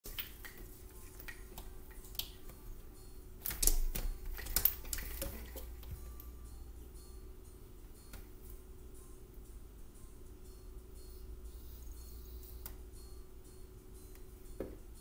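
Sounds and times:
window blinds rattling and clacking: 3.7 - 5.7.

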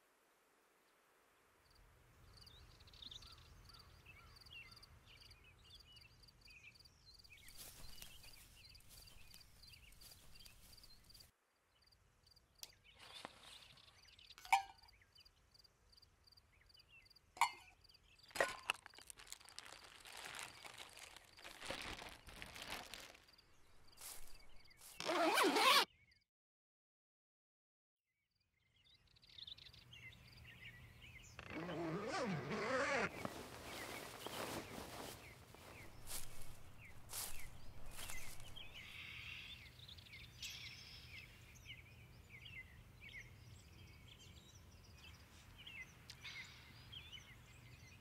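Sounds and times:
small birds chirping: 1.7 - 26.2, 28.6 - 48.0
tent fabric rustling: 7.3 - 11.3, 18.3 - 25.9, 31.4 - 38.9.

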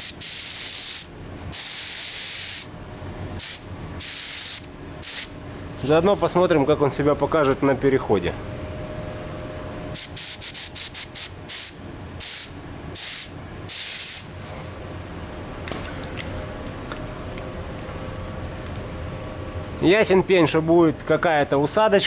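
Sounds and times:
paint spray gun hissing bursts: 0.0 - 2.7, 3.4 - 5.3, 10.0 - 14.3
steady background hum: 0.0 - 22.0.

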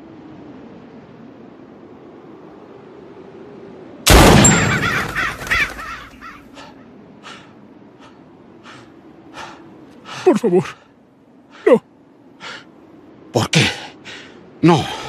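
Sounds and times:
gunshot: 4.1 - 5.1
crows cawing: 4.5 - 8.8.

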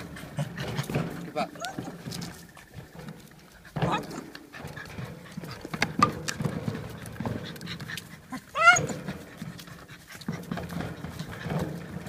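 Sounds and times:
dog panting: 0.0 - 12.0
knocks and scrapes on tyre: 0.0 - 12.0
dog yelping: 1.4 - 2.1, 8.3 - 9.1.

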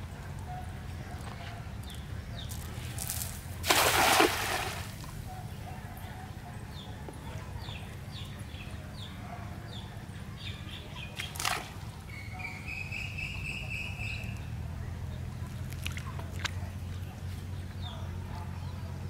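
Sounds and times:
net splashing into water: 3.0 - 5.1.

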